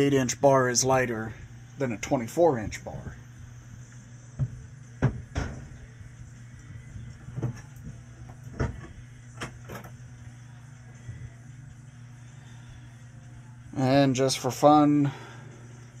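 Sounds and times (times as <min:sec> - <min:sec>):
steady low hum: 0:00.0 - 0:16.0
objects clattering on a workbench: 0:04.4 - 0:05.7, 0:07.3 - 0:10.0.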